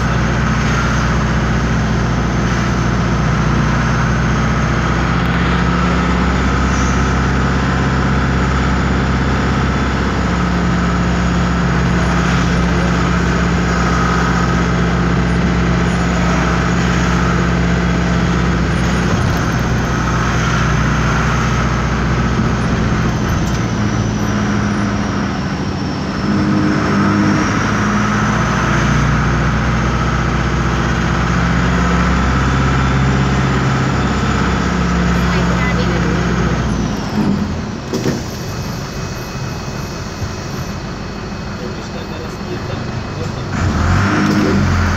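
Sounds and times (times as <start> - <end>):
bus diesel engine running: 0.0 - 44.9.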